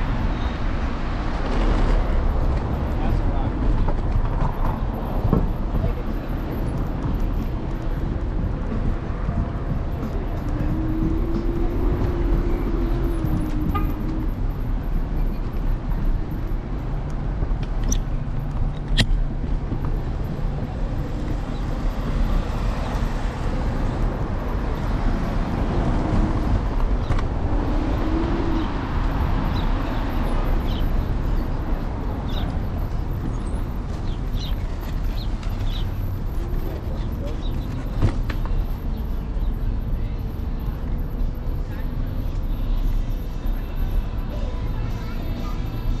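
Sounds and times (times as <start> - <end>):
road noise: 0.0 - 46.0
traffic: 0.0 - 46.0
wind buffeting: 23.6 - 34.4.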